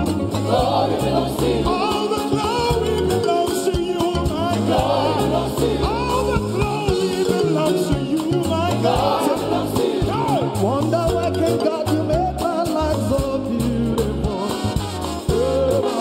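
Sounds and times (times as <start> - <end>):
lead singer and choir singing: 0.0 - 11.2
live gospel band: 0.0 - 16.0.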